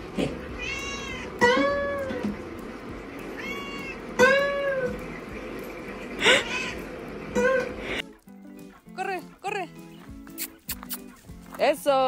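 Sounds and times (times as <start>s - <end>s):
cat meowing: 0.5s - 2.1s, 3.3s - 4.9s
acoustic guitar playing: 1.4s - 2.4s, 4.2s - 5.0s.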